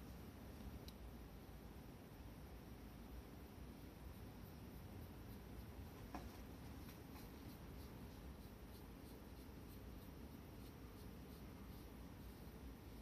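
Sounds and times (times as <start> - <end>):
fingers scratching cat fur: 4.1 - 13.0.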